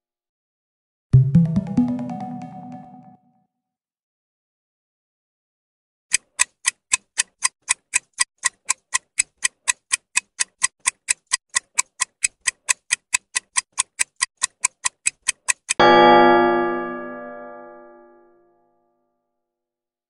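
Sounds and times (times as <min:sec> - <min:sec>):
clock-like timer ticks: 0:06.1 - 0:15.8.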